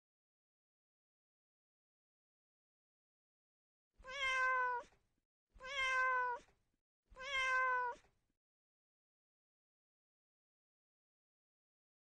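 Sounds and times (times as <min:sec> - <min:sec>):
kitten meowing: 0:04.0 - 0:05.0, 0:05.6 - 0:06.5, 0:07.2 - 0:08.1.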